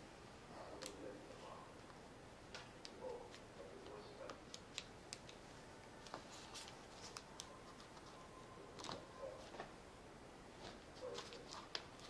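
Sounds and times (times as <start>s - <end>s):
paper being folded and creased: 6.0s - 9.6s, 10.6s - 12.0s.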